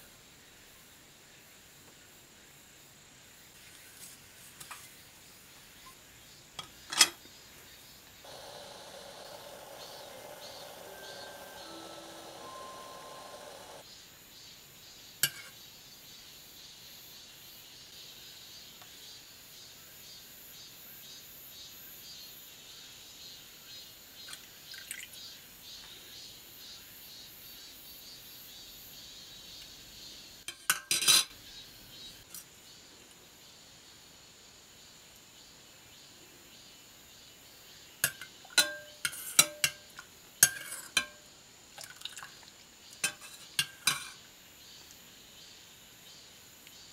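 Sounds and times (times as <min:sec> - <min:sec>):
simmering hiss: 0:07.3 - 0:15.1
metal ladle clinking on pot: 0:38.0 - 0:39.8, 0:40.4 - 0:41.2, 0:43.0 - 0:44.1.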